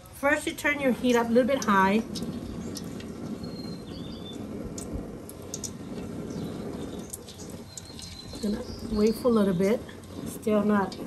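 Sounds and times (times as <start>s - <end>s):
oil heating in a wok: 0.0s - 11.0s
bird chirp: 2.1s - 10.3s.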